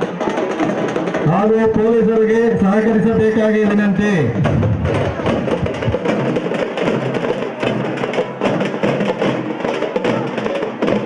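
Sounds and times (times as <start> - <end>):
fast drumming: 0.0 - 11.0.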